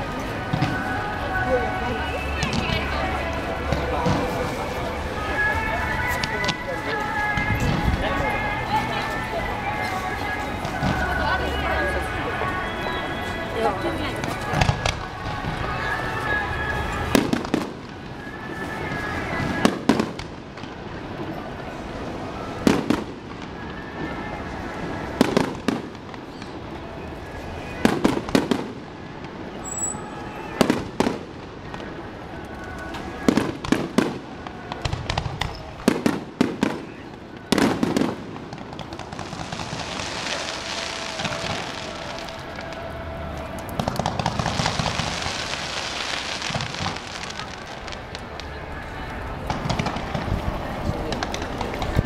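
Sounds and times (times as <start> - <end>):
crackling firework hiss: 0.0 - 52.0.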